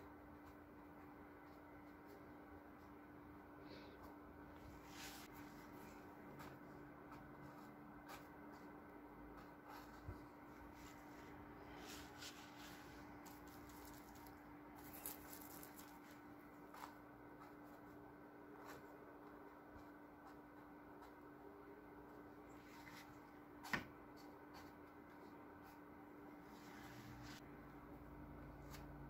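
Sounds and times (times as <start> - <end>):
brush strokes on canvas: 4.5 - 7.5, 9.5 - 18.0, 26.4 - 27.5.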